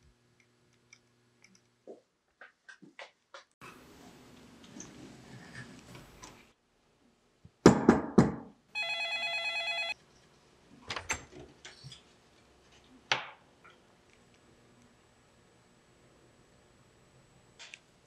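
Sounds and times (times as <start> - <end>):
telephone gongs ringing: 8.8 - 10.0.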